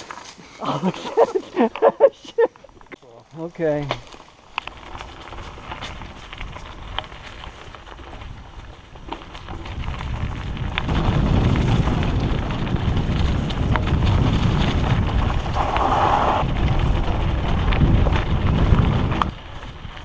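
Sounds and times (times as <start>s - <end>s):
bike clicks and rattles: 2.6s - 20.0s
wind buffeting microphone: 4.7s - 20.0s.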